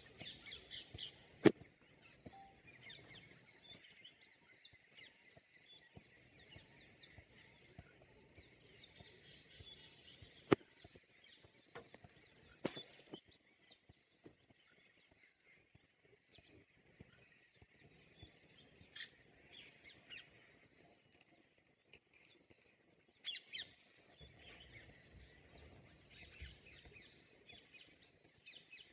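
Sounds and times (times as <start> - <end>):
steady high-pitched background: 2.4 - 2.8.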